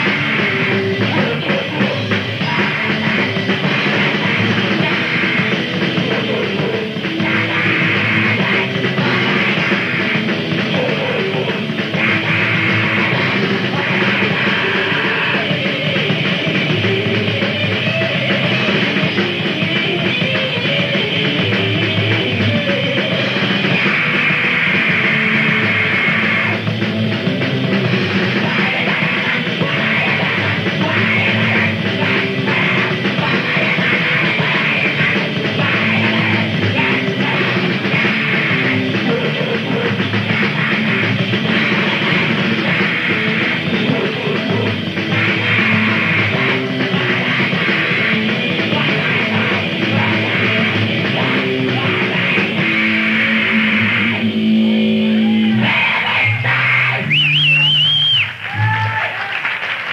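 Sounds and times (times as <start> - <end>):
grindcore band playing: 0.0 - 59.9
person yelling vocals: 55.1 - 57.1.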